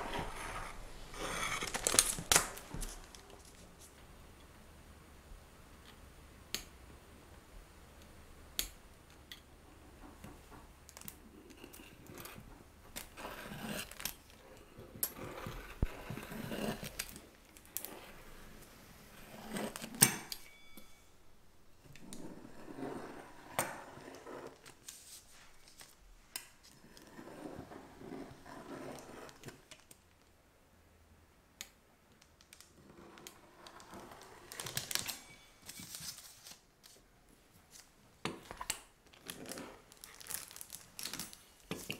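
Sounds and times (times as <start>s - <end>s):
pizza cutter rolling through dough: 22.1s - 24.6s, 26.8s - 29.5s.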